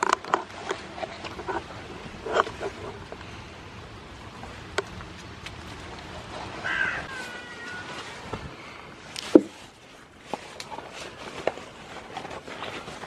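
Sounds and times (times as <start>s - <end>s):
harsh animal call: 6.6s - 8.3s.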